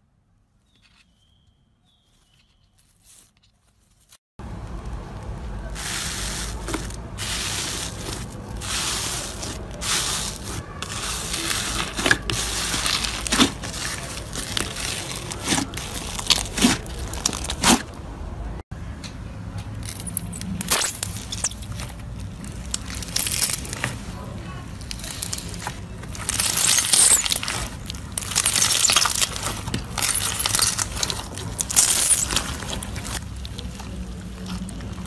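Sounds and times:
slime crackling and popping: 21.0 - 24.0, 24.7 - 35.0
slime being squeezed: 24.8 - 33.2.

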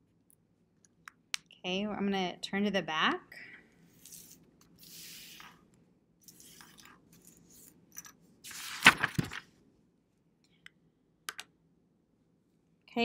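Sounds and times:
paper rustling: 6.3 - 9.5
paper sheet crinkling: 6.3 - 9.5.

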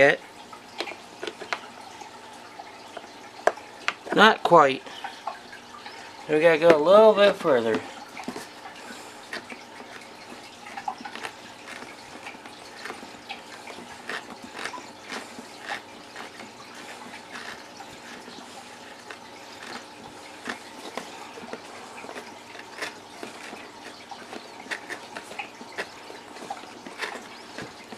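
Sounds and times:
reamer scraping plastic: 5.8 - 27.9.

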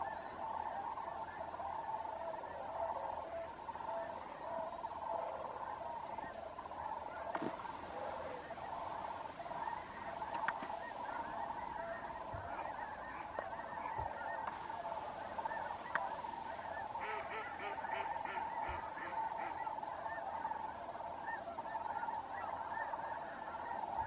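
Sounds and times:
cranes and geese calling: 0.0 - 24.0.

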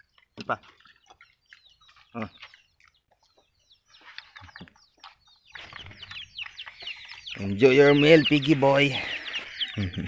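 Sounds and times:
chickens clucking and chirping: 0.0 - 10.0.

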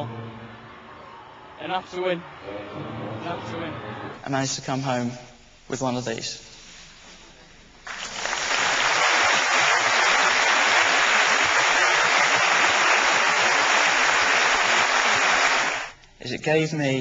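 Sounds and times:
audience applauding: 7.8 - 16.0.

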